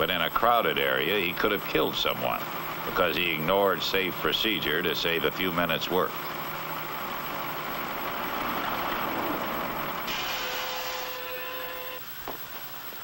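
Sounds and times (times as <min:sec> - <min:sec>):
faint steady whine: 0:00.0 - 0:13.0
heavy engine running: 0:06.3 - 0:12.0
hiss: 0:10.0 - 0:11.2.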